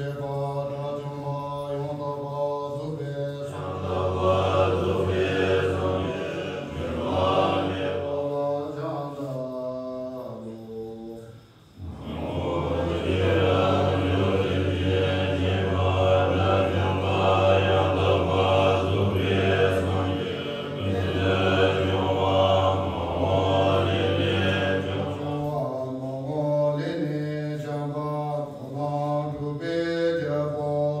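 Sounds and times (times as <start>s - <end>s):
monks chanting in unison: 0.0s - 31.0s.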